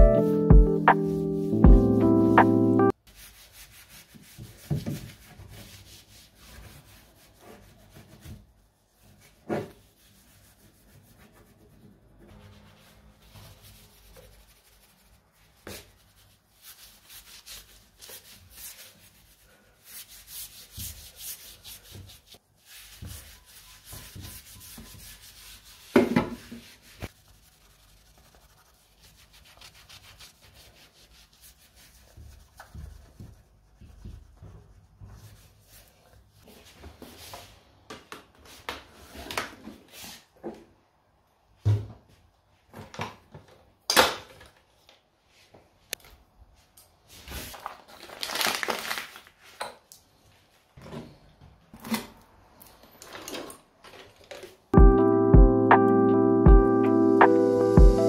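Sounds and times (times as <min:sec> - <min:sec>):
scratchy rubbing and rustling: 0:03.1 - 0:37.3.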